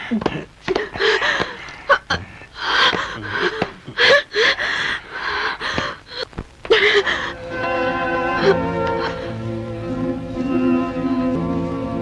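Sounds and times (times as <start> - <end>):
people breathing hard and gasping: 0.0 - 9.6.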